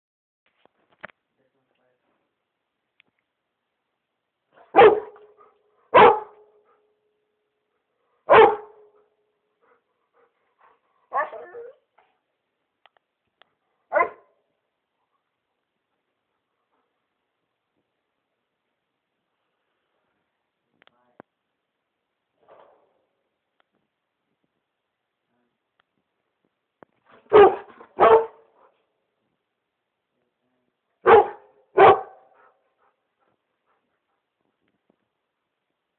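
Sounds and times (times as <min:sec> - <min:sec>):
dog barking: 0:04.5 - 0:06.9, 0:08.2 - 0:09.1, 0:11.1 - 0:11.8, 0:13.9 - 0:14.4, 0:27.2 - 0:28.8, 0:31.0 - 0:33.0.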